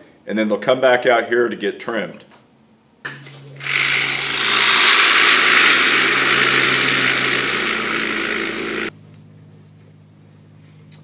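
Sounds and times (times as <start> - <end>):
low motor hum: 3.6 - 8.9.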